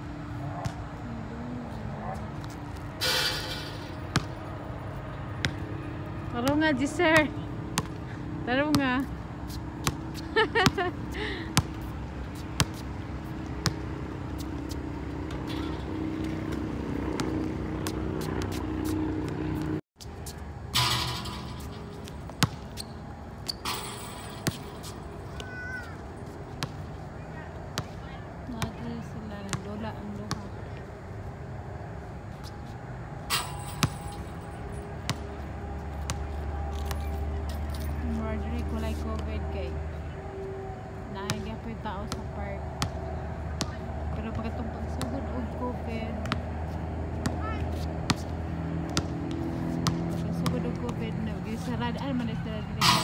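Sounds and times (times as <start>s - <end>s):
low hum: 0.0s - 19.8s
outdoor background noise: 0.0s - 53.0s
basketball bouncing on concrete: 2.0s - 4.5s, 5.3s - 5.6s, 6.3s - 19.7s, 20.3s - 26.9s, 27.8s - 30.8s, 33.3s - 34.3s, 35.0s - 35.2s, 36.0s - 37.6s, 41.3s - 53.0s.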